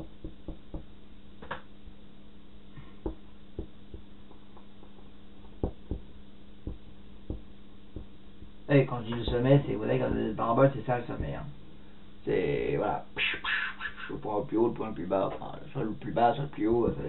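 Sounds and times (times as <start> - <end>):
marker tapping on whiteboard: 0.0 - 1.6, 3.0 - 4.1, 5.6 - 6.1, 6.7 - 8.1
steady low hum: 0.0 - 17.0.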